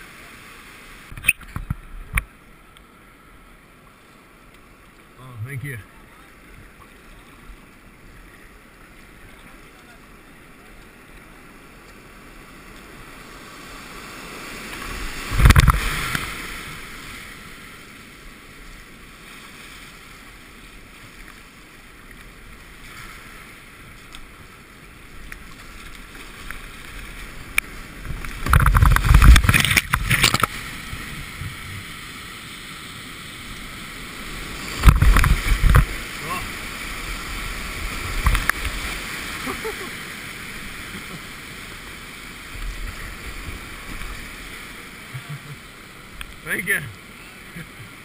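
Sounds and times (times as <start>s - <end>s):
rushing river water: 0.0s - 48.0s
loud water splashes: 13.6s - 17.5s.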